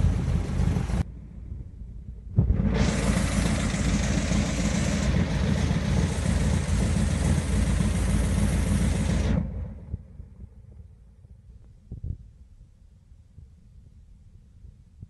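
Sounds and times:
car engine idling: 0:00.0 - 0:01.3, 0:02.5 - 0:11.2.

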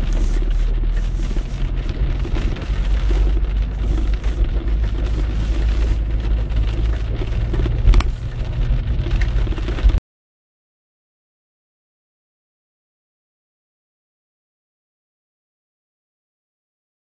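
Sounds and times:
car driving on wet road: 0:00.0 - 0:10.0.

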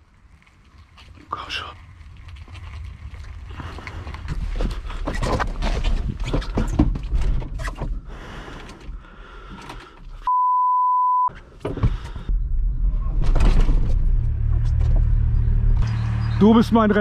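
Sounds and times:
censor bleep: 0:10.3 - 0:11.3
diesel engine running: 0:12.7 - 0:17.0.

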